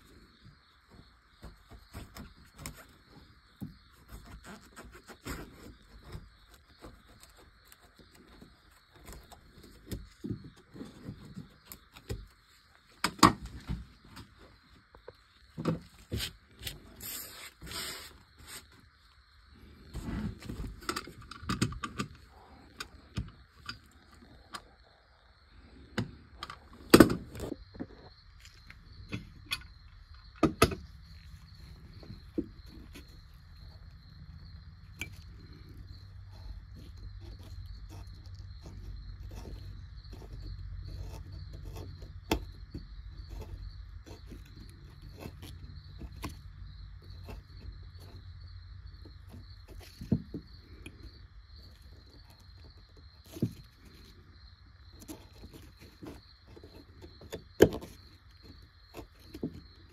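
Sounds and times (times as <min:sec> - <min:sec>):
scraping hiss: 0:16.2 - 0:18.8
chisel paring wood: 0:29.0 - 0:31.0, 0:55.0 - 0:59.8.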